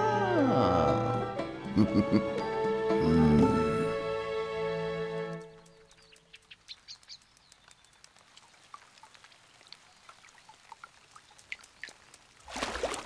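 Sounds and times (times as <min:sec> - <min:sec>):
water drips and clicks: 0:05.0 - 0:13.0.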